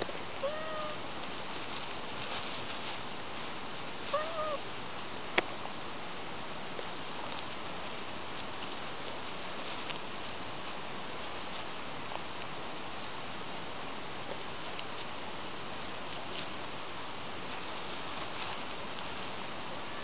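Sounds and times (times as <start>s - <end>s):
cat rolling on gravel and leaves: 0.0s - 20.0s
steady hiss: 0.0s - 20.0s
cat meowing: 0.4s - 1.0s, 4.0s - 4.6s.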